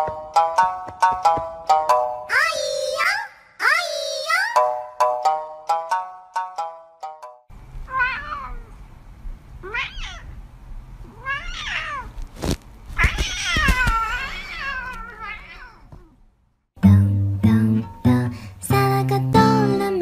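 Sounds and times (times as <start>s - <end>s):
plucky background music: 0.0s - 2.4s, 16.8s - 20.0s
cat meowing: 7.8s - 8.8s, 9.6s - 10.4s, 11.0s - 12.2s, 13.0s - 16.2s.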